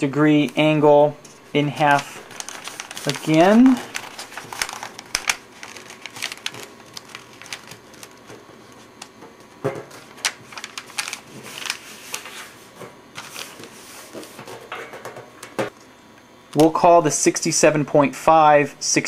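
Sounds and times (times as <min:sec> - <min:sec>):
paper being folded and creased: 0:01.5 - 0:09.2, 0:09.9 - 0:14.5.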